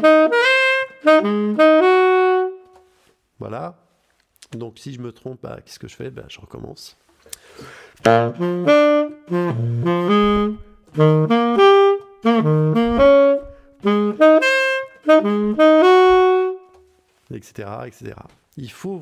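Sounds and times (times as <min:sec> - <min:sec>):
solo tenor saxophone jazz: 0:00.0 - 0:03.2, 0:08.0 - 0:17.2.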